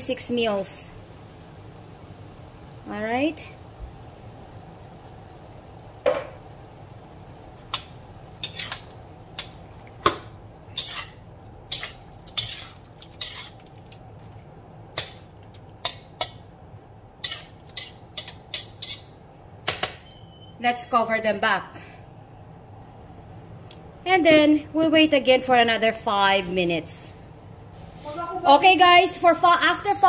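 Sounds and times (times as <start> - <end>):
metal spatula scraping a wok: 8.4 - 9.5, 10.7 - 13.7, 17.2 - 19.2.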